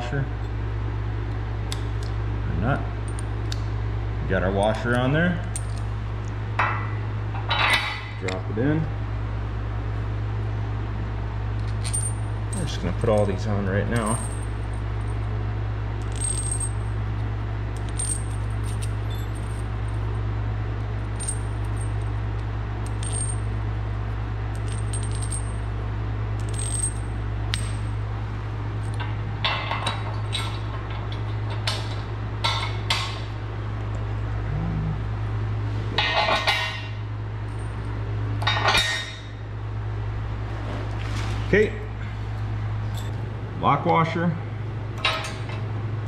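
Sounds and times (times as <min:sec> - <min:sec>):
steady low hum: 0:00.0 - 0:46.0
metal washers and nuts clinking: 0:05.4 - 0:05.9, 0:11.6 - 0:15.3, 0:16.0 - 0:17.0, 0:17.8 - 0:20.2, 0:21.0 - 0:22.2, 0:22.8 - 0:23.6, 0:24.5 - 0:25.7, 0:26.4 - 0:28.0, 0:28.8 - 0:33.2, 0:36.0 - 0:39.2.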